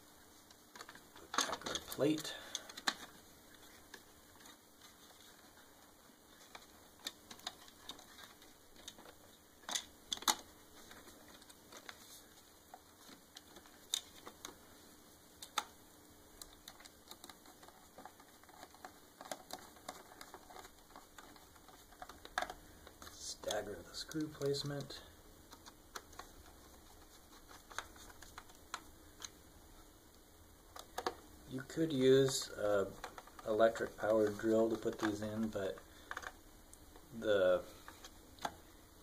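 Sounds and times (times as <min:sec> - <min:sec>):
plastic parts clicking and tapping: 0:00.7 - 0:04.6, 0:06.4 - 0:12.0, 0:12.7 - 0:14.6, 0:15.4 - 0:15.8, 0:16.4 - 0:29.4, 0:30.7 - 0:37.1.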